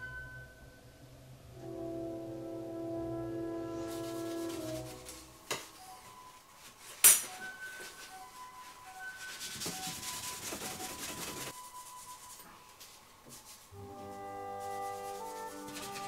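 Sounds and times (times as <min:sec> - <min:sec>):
cloth rubbing on steel: 0:03.7 - 0:16.0.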